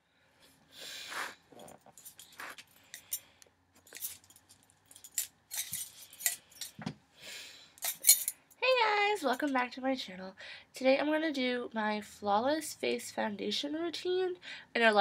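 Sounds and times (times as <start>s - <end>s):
short hissing: 0.8s - 1.4s
small clicks and clinks: 1.6s - 6.8s, 7.8s - 8.6s.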